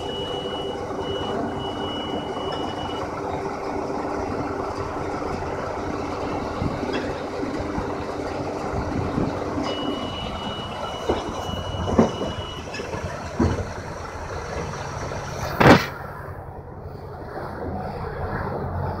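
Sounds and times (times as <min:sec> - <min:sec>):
tractor and baler running: 0:00.0 - 0:19.0
machinery knocks: 0:11.0 - 0:13.8
loud sudden noise: 0:15.4 - 0:16.6.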